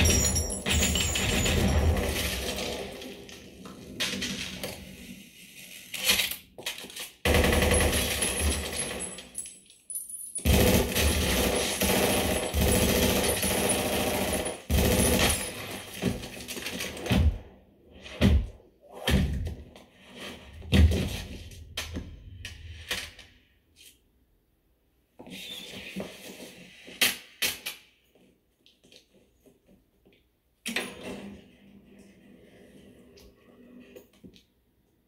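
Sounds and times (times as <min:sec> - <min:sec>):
clattering debris: 0:00.0 - 0:04.8
rapid gunfire: 0:07.2 - 0:09.0, 0:10.4 - 0:17.3.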